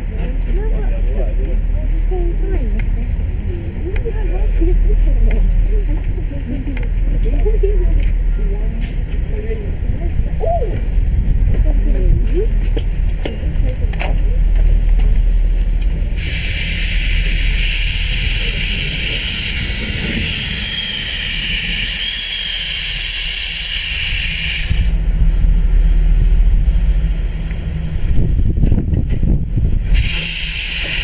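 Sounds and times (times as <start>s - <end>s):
low rumble: 0.0s - 22.0s, 23.8s - 30.6s
safety valve steam hiss: 16.1s - 24.9s, 29.8s - 31.0s.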